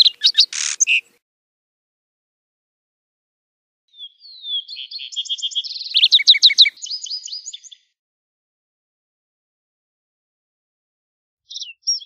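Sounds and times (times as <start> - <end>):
sparrow singing: 0.0 - 1.2, 3.9 - 8.0, 11.5 - 12.0.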